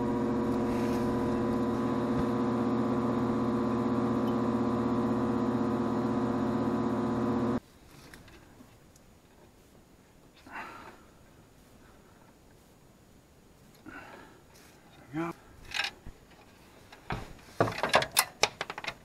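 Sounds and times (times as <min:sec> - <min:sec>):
buzzing mains hum: 0:00.0 - 0:07.6.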